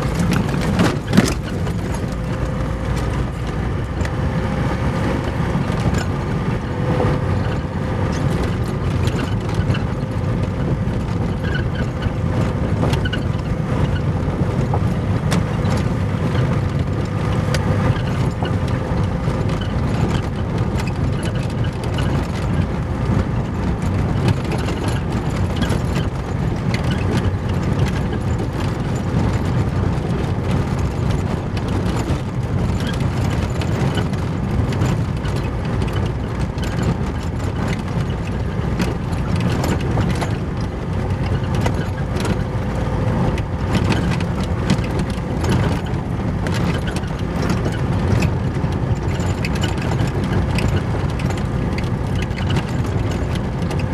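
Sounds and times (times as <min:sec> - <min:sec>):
sharp clicks and rattles: 0:00.0 - 0:53.9
tyres rumbling on gravel: 0:00.0 - 0:53.9.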